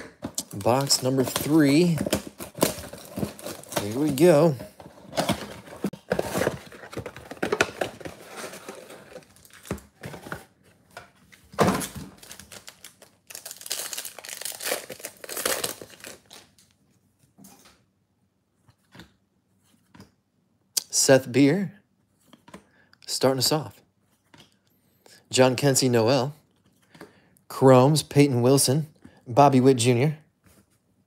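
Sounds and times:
packaging crinkling and tearing: 0:00.3 - 0:10.4, 0:11.8 - 0:16.8.

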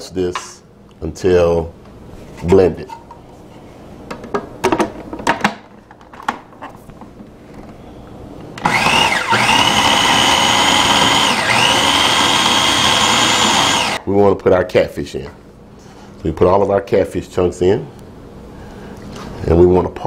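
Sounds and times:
food processor motor whining: 0:08.6 - 0:14.0.

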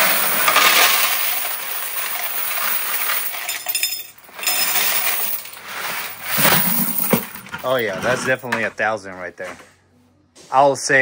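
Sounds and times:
coins clinking into coin counter: 0:00.0 - 0:07.8.

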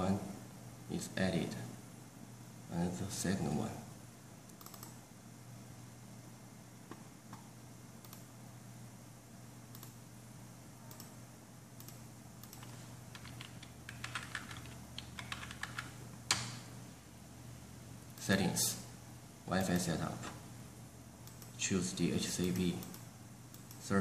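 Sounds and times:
low steady hum: 0:00.0 - 0:24.0
computer keyboard typing: 0:11.8 - 0:16.6.

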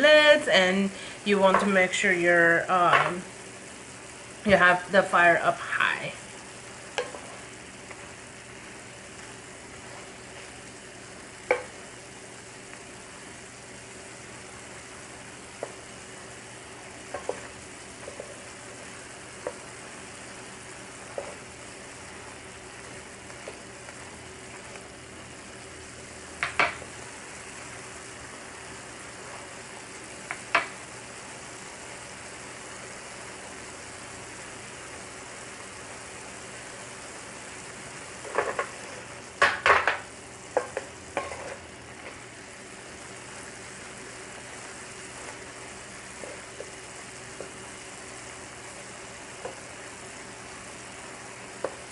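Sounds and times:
food sizzling in a frying pan: 0:00.0 - 0:51.9
wooden spatula knocking on pan: 0:07.0 - 0:07.2, 0:11.5 - 0:11.8, 0:26.4 - 0:26.8, 0:40.6 - 0:41.5.

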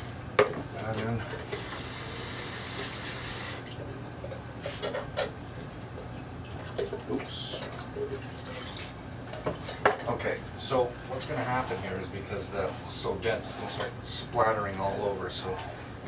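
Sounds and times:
tap water hissing: 0:01.5 - 0:03.8.

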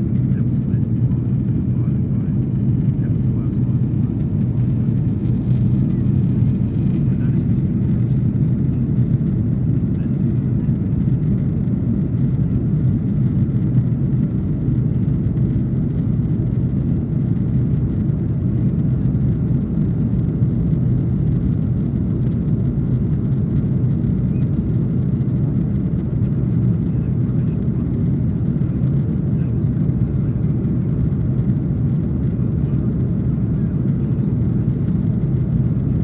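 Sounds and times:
jet engines rumbling: 0:00.0 - 0:36.0.

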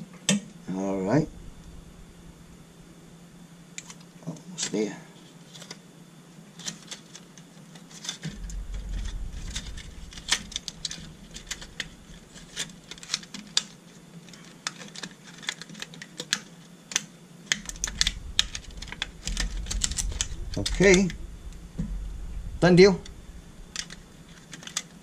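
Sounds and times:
fingers clicking and tapping wires: 0:09.5 - 0:21.2.

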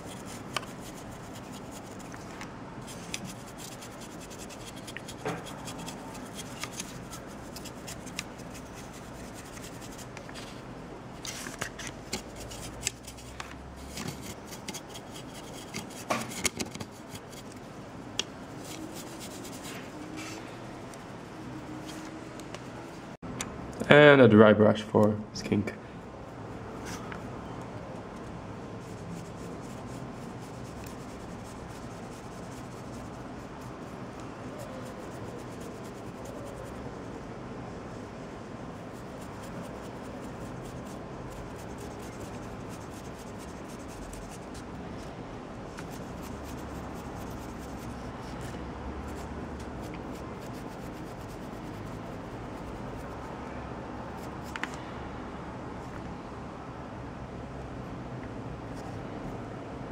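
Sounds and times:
dry paint brush scratching: 0:00.0 - 0:10.6, 0:11.2 - 0:17.7, 0:18.3 - 0:22.1, 0:28.2 - 0:37.1, 0:38.5 - 0:45.1, 0:45.7 - 0:53.4, 0:54.1 - 0:54.7.

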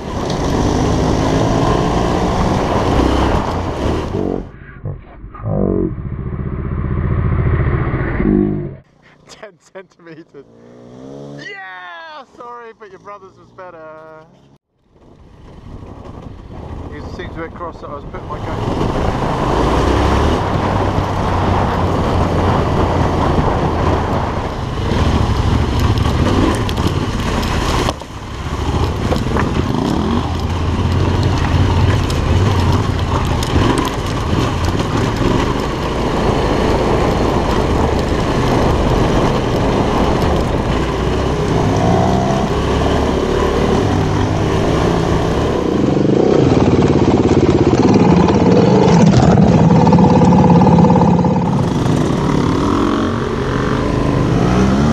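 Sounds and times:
wind and ride noise: 0:00.0 - 0:54.9
motorcycle engine running: 0:05.8 - 0:09.3, 0:18.4 - 0:54.9.

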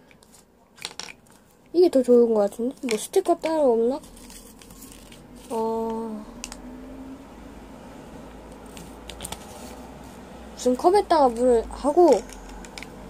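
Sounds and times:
plastic toy parts handling clicks: 0:00.1 - 0:01.4, 0:02.8 - 0:03.6, 0:12.1 - 0:13.0.

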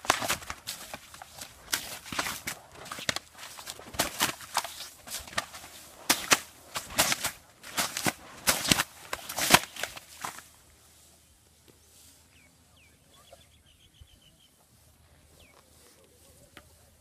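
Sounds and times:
strip flapping through air: 0:00.0 - 0:10.5
faint bird chirps: 0:11.2 - 0:16.9.

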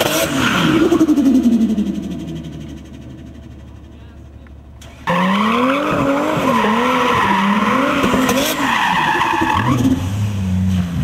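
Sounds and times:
turbocharged engine revving: 0:00.0 - 0:03.5, 0:04.8 - 0:11.0
tyre squeal: 0:04.9 - 0:10.0.

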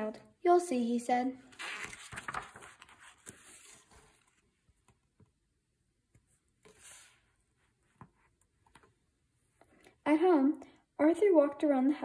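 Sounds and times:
paper page turning: 0:01.5 - 0:05.0, 0:06.6 - 0:07.3
soft touches on paper: 0:02.1 - 0:05.0, 0:06.1 - 0:08.9.

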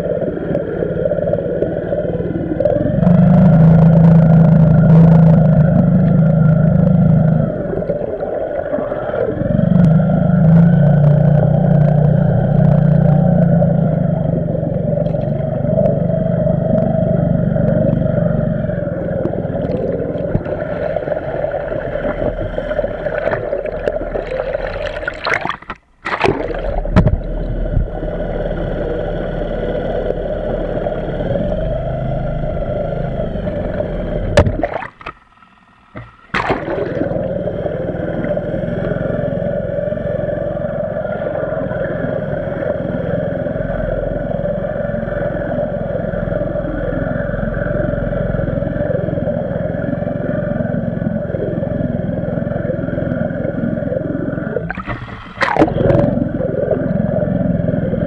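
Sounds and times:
churning water: 0:00.0 - 0:58.0
outboard motor drone underwater: 0:00.0 - 0:58.0.

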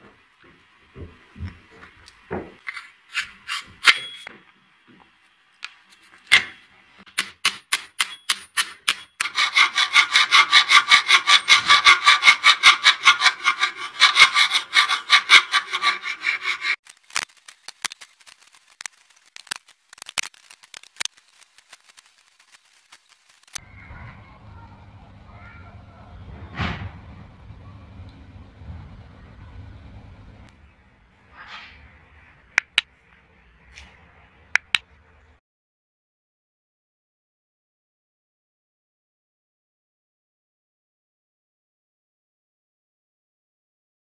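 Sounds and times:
file rasping wood: 0:09.2 - 0:16.8.

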